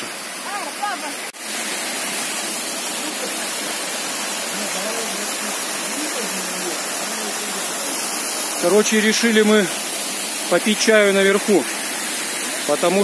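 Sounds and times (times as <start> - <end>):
waterfall rushing into pool: 0.0 - 13.0.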